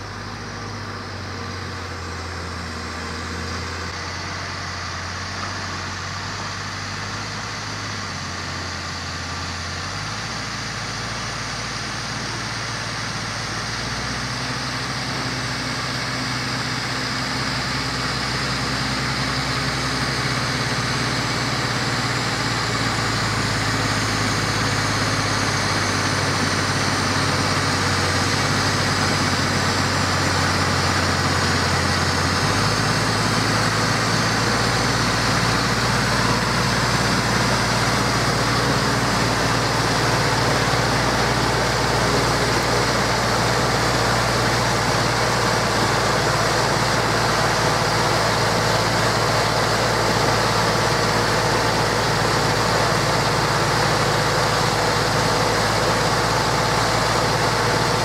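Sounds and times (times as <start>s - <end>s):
tractor diesel engine under load: 0.0s - 58.0s.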